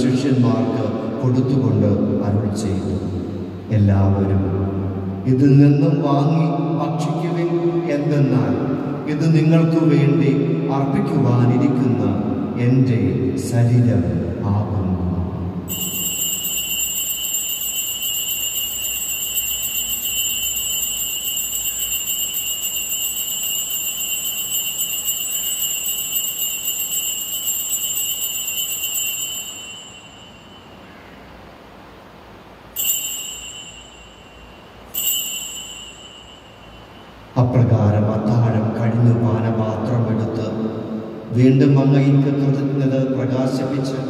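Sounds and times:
altar bell ringing: 0:15.6 - 0:31.0, 0:32.6 - 0:37.4.

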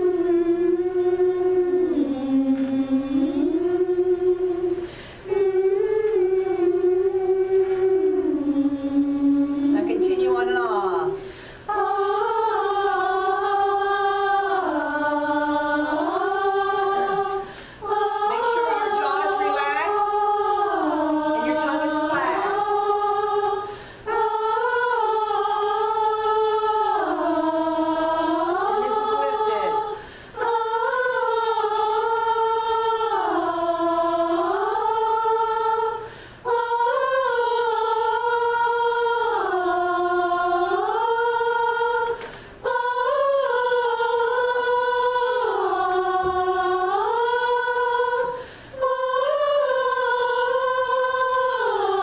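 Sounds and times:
choir singing vocalise: 0:00.0 - 0:52.0
singers breathing in: 0:04.8 - 0:05.3, 0:11.2 - 0:11.7, 0:17.4 - 0:17.9, 0:23.6 - 0:24.1, 0:30.0 - 0:30.4, 0:36.0 - 0:36.5, 0:42.2 - 0:42.6, 0:48.3 - 0:48.8.

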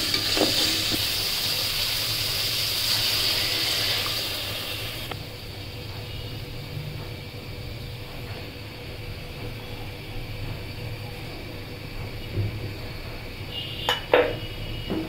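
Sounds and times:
food sizzling in hot oil: 0:00.0 - 0:05.8.

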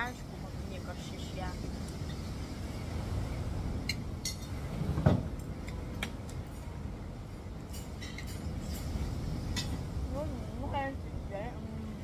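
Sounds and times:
low background rumble: 0:00.0 - 0:12.0
cutlery clinking on plate: 0:07.7 - 0:08.9.

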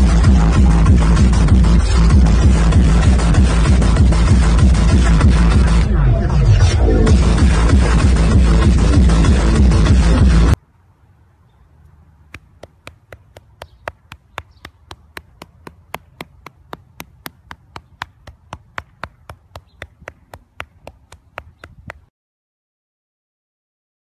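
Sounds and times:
loud electronic dance music: 0:00.0 - 0:10.6
hand patting animal belly: 0:12.3 - 0:22.1.

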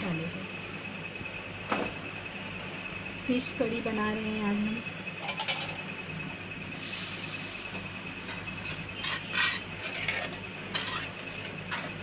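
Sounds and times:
steady background hum: 0:00.0 - 0:12.0
metal spoon scraping metal pan: 0:08.6 - 0:12.0.

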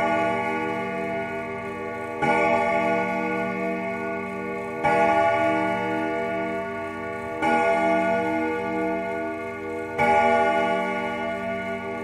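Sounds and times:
church bell tolling: 0:00.0 - 0:12.0.

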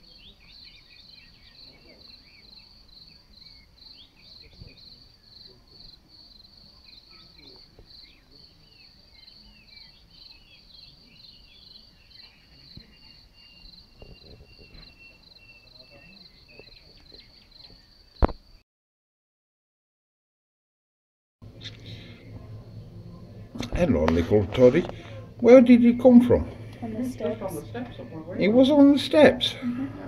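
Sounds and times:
bird chirps: 0:00.0 - 0:05.6, 0:06.8 - 0:18.3
crickets trilling: 0:00.0 - 0:18.6, 0:21.4 - 0:29.8.

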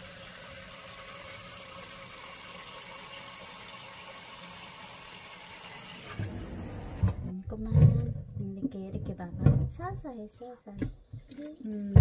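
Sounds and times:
tap water running into sink: 0:00.0 - 0:07.3.

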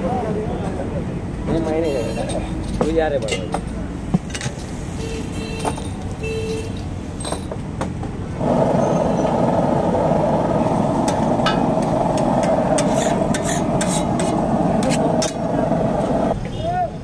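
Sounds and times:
spatulas clinking on iron griddle: 0:12.4 - 0:15.4.

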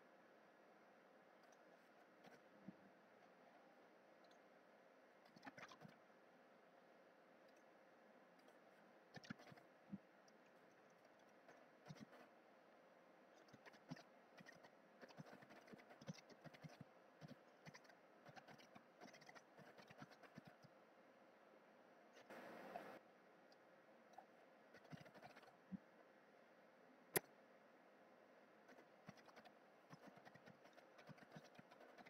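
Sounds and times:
faint keyboard typing: 0:09.2 - 0:12.3, 0:13.4 - 0:20.7, 0:22.2 - 0:25.8, 0:28.7 - 0:32.0.

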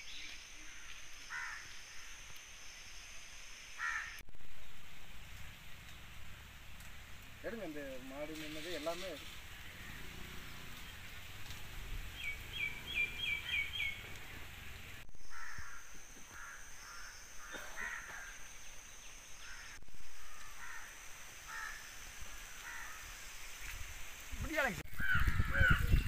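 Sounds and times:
birds chirping: 0:03.8 - 0:20.9.

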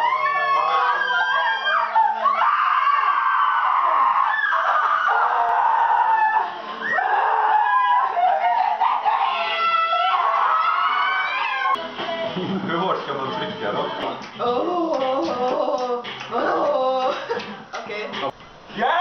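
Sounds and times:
young people shrieking and squealing: 0:00.0 - 0:11.8.

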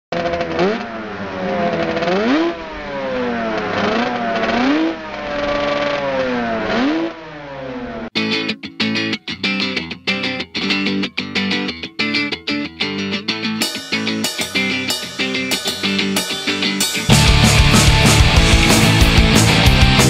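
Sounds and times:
motocross bike engine revving: 0:00.1 - 0:08.1, 0:14.8 - 0:20.0
distorted electric guitar music: 0:08.2 - 0:20.0.

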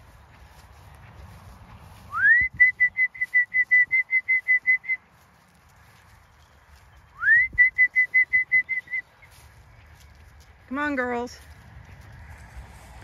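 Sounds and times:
short high whistle pips: 0:02.1 - 0:05.0.

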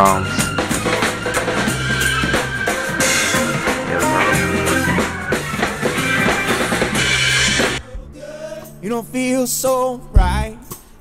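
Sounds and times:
drum kit beat: 0:00.0 - 0:07.8, 0:10.2 - 0:10.6
funk band playing: 0:00.0 - 0:07.8.

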